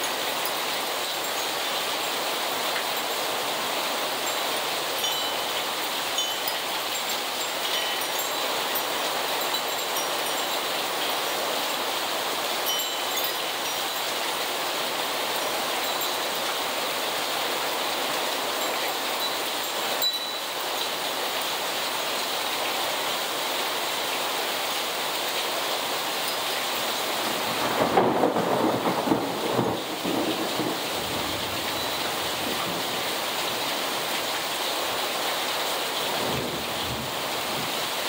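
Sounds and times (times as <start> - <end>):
faint high tinkling: 0.0 - 11.8, 12.5 - 14.6, 15.3 - 17.0, 18.0 - 22.1, 31.3 - 36.0
heavy rain hissing: 0.0 - 38.0.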